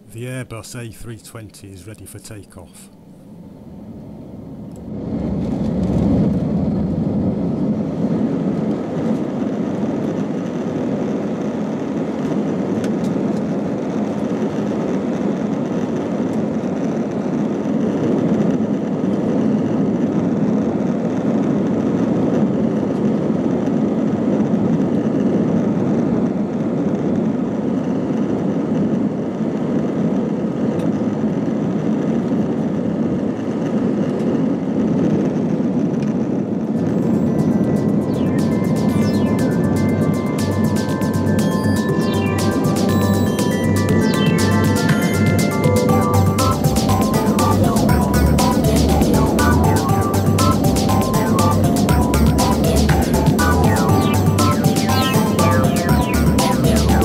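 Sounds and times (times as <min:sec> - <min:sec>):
jet engines roaring: 0:00.0 - 0:23.4, 0:30.3 - 0:57.0
faint high whine: 0:36.7 - 0:57.0.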